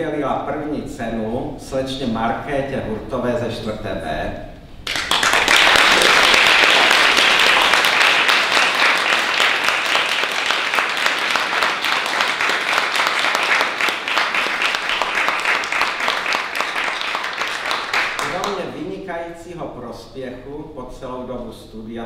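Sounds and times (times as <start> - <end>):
audience applauding: 4.8 - 18.7.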